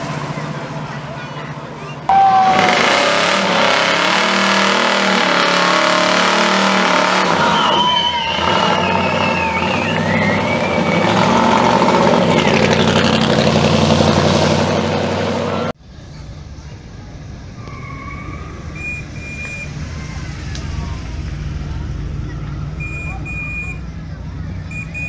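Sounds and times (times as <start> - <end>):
tyres squealing on asphalt: 0.0 - 25.0
car engine revving: 2.1 - 15.8.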